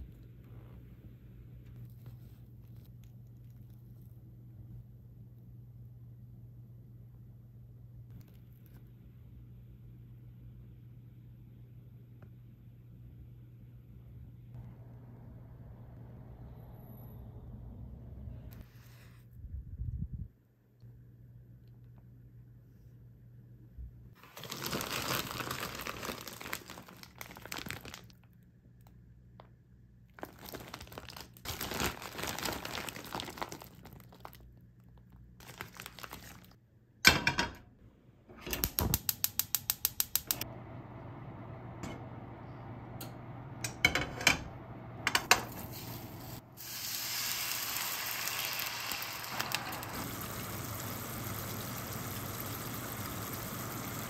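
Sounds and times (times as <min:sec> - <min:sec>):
plastic bag crinkling: 0:24.2 - 0:28.4, 0:30.2 - 0:36.6
gas stove igniter clicking: 0:38.5 - 0:40.4
dumplings sizzling in a frying pan: 0:45.4 - 0:54.0.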